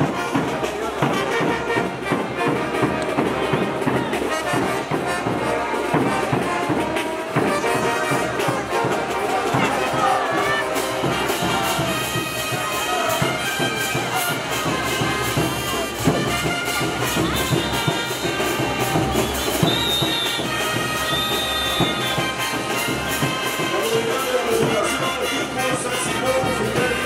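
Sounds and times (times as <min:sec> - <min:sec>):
wind instruments playing melody: 0:00.0 - 0:27.0.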